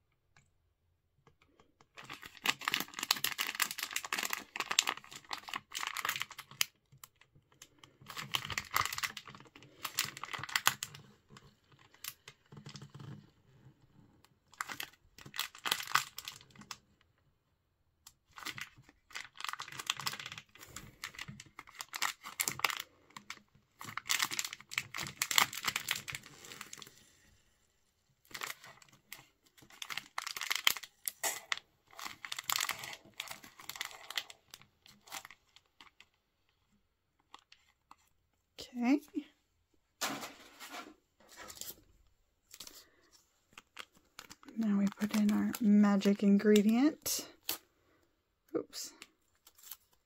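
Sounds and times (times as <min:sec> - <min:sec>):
foil packet crinkling: 0:02.0 - 0:13.1, 0:14.5 - 0:16.8, 0:18.2 - 0:27.4, 0:28.2 - 0:36.2, 0:42.4 - 0:47.6, 0:49.0 - 0:50.0.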